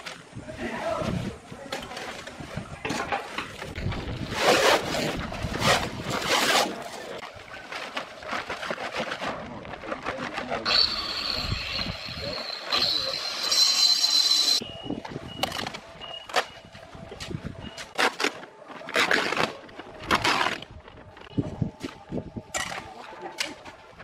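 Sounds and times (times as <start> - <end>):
steady high-pitched whine: 10.7 - 16.7.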